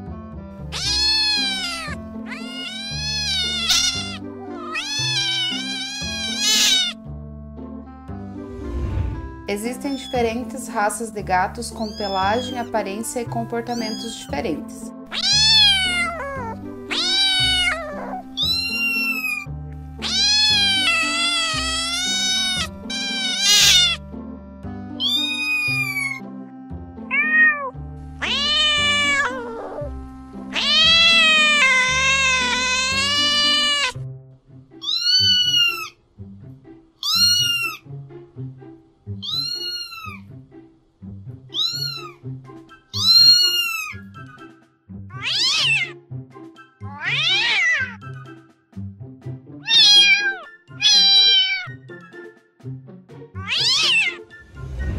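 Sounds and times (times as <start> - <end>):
background music: 0.0 - 54.9
cats meowing: 0.6 - 7.0, 11.8 - 12.7, 13.7 - 14.3, 15.1 - 24.0, 25.0 - 26.2, 27.1 - 34.0, 34.8 - 36.0, 37.0 - 37.9, 39.2 - 40.3, 41.5 - 42.2, 42.9 - 44.1, 45.2 - 46.0, 46.8 - 48.0, 49.6 - 51.8, 53.4 - 54.3.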